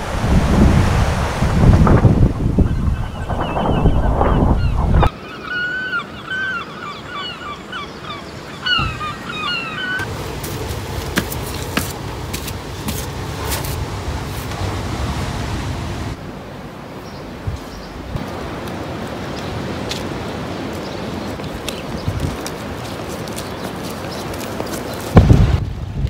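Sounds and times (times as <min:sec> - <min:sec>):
wind and surf: 0:00.0 - 0:26.0
gull calling: 0:02.6 - 0:10.1.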